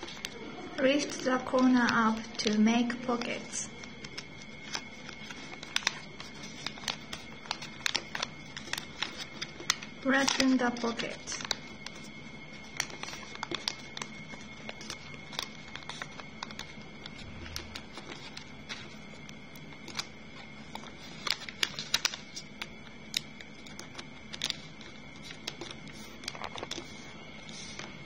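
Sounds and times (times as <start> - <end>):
paper being folded and creased: 0.0 - 28.0.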